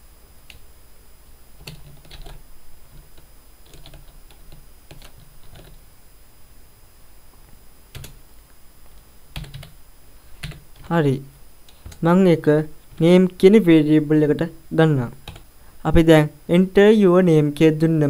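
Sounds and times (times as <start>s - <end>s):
keyboard keystrokes: 1.6s - 5.8s, 8.0s - 8.2s, 9.4s - 9.8s, 10.4s - 10.9s, 11.7s - 12.0s.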